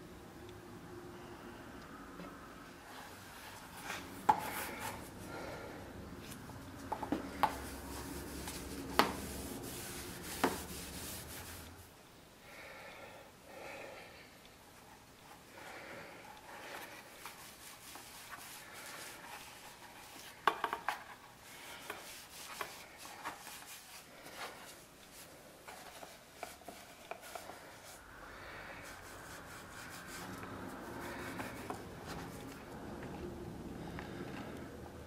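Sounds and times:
faint steady hum: 0.0s - 35.0s
hands rubbing leather: 6.2s - 11.9s, 16.6s - 28.0s, 28.8s - 32.7s.

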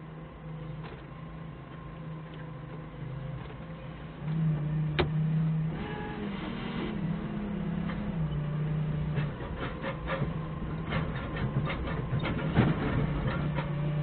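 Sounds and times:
forklift engine running: 0.0s - 14.0s
rattles and clanks: 9.0s - 14.0s.

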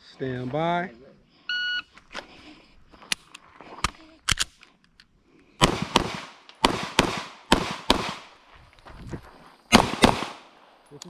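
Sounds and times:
pistol shots with echo: 5.6s - 8.3s, 9.7s - 10.6s.

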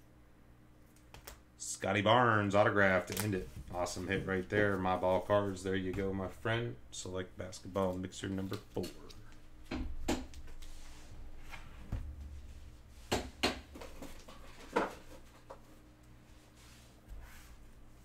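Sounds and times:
soft rustling: 10.4s - 13.1s, 14.0s - 18.0s.

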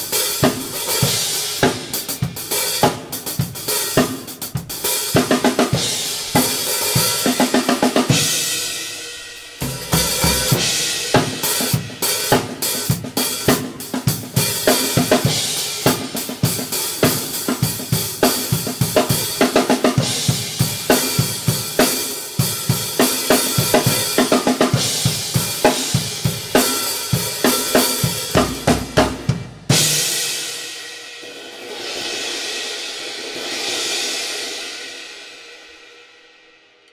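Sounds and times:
drum kit groove: 0.0s - 35.9s
cymbal crashes ringing: 8.1s - 12.2s.

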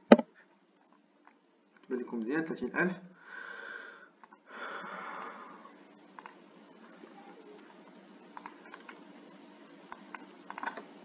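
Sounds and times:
computer mouse clicks: 4.2s - 4.4s, 5.1s - 5.3s, 6.2s - 6.4s, 8.4s - 9.0s, 9.9s - 10.9s.

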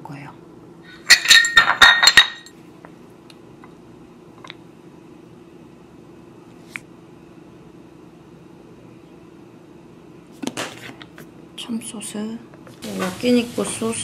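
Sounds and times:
ceramic dishes clinking: 1.0s - 2.5s.

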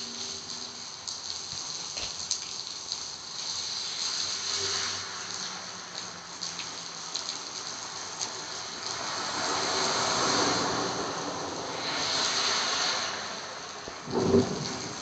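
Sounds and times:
car tyres splashing through water: 0.0s - 15.0s
steady rain: 0.0s - 15.0s.

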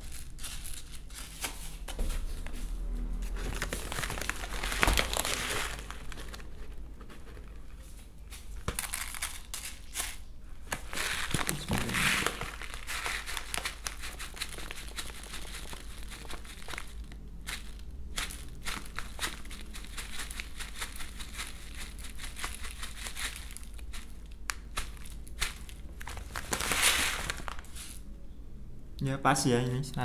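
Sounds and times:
pellets trickling into plastic tub: 3.3s - 6.5s, 8.7s - 28.0s
feed bag crinkling: 3.3s - 28.0s
pellets clicking as they land: 8.6s - 27.5s.

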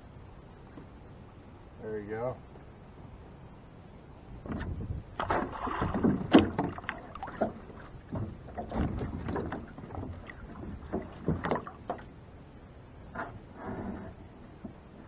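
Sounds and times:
water splashes: 4.6s - 12.3s.

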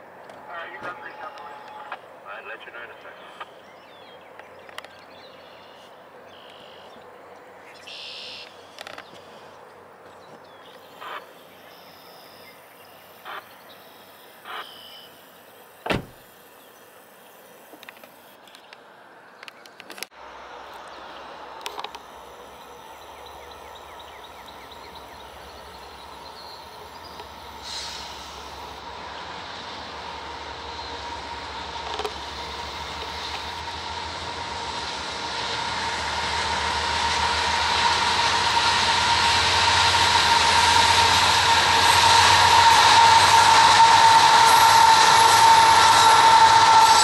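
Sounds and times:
freight train rumbling: 0.0s - 6.3s, 20.1s - 47.0s
birds chirping: 0.6s - 17.6s.

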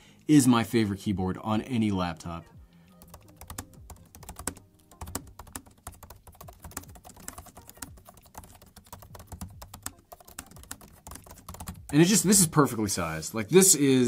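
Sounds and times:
keyboard typing clicks: 3.0s - 11.9s.

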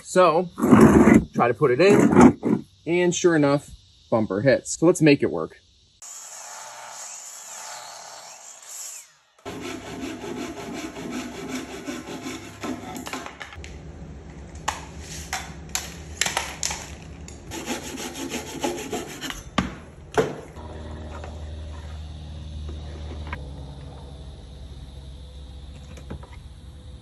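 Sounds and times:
saw cutting wooden board: 0.6s - 2.6s, 6.0s - 13.4s, 17.5s - 19.4s.

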